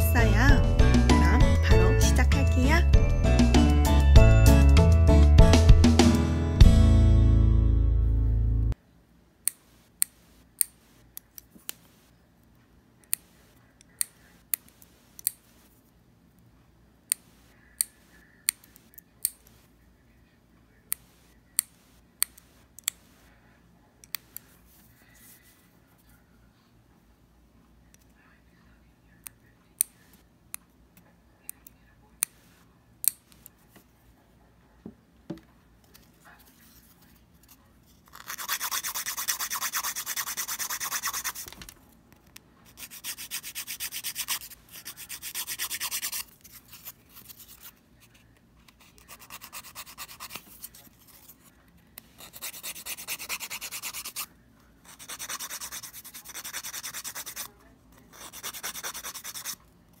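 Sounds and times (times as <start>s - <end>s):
nail file rasping: 38.1s - 41.6s, 42.7s - 47.7s, 52.2s - 54.3s, 54.9s - 57.5s, 58.2s - 59.6s.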